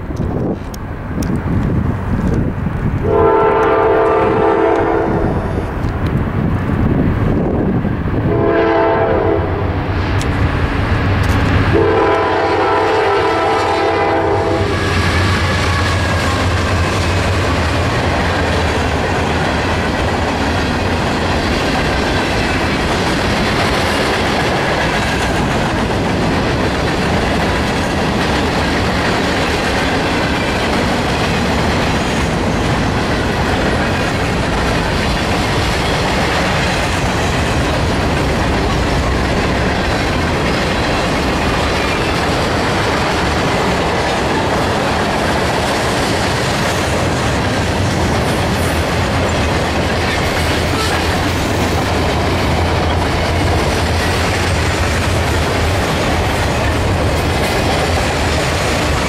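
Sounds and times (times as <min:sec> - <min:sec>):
locomotive engine rumbling: 0:00.0 - 0:59.0
train horn blasts: 0:03.0 - 0:05.5, 0:08.3 - 0:09.8, 0:11.7 - 0:15.0
train wheels clacking on rails: 0:07.3 - 0:59.0.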